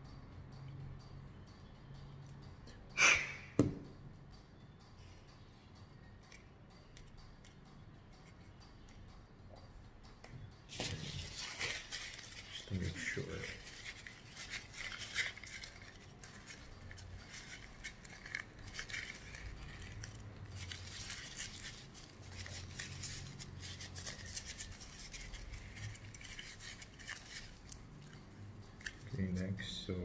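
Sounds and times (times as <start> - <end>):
tissue rubbing plastic: 10.7 - 28.1.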